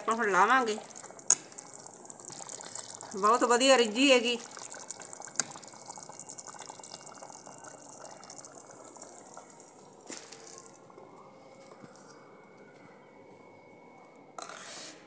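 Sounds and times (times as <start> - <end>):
thick sauce bubbling and popping: 0.2 - 11.0.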